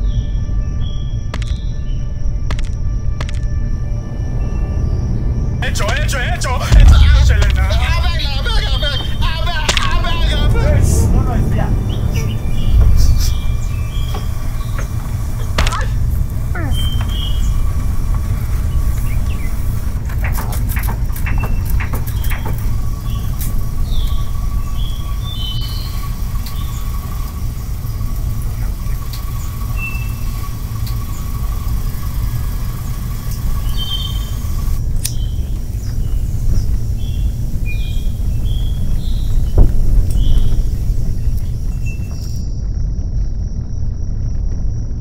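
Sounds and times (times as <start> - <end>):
knocks and clicks: 1.3 - 1.7, 2.5 - 3.6, 19.3 - 24.3
truck driving on rough track: 2.5 - 45.0
bird chirps: 4.1 - 42.5.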